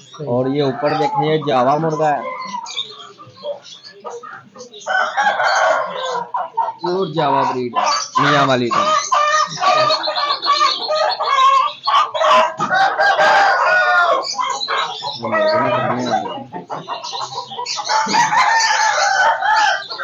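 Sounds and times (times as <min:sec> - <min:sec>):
chickens clucking: 0:00.0 - 0:20.0
roosters crowing: 0:00.0 - 0:20.0.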